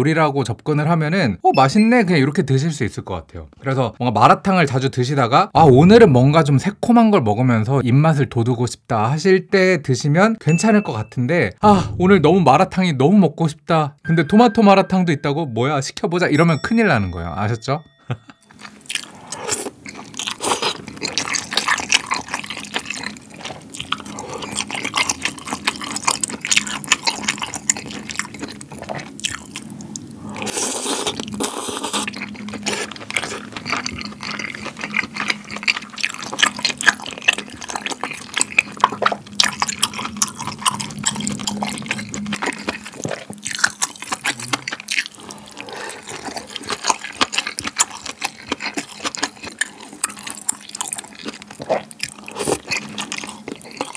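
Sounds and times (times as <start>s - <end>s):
wet chewing: 18.5s - 53.9s
noodles slurped: 18.8s - 53.9s.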